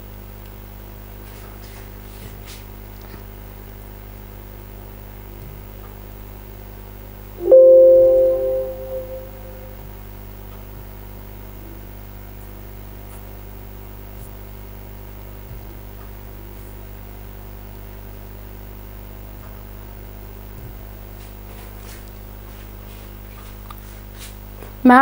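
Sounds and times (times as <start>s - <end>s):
electronic computer chime: 7.4s - 9.7s.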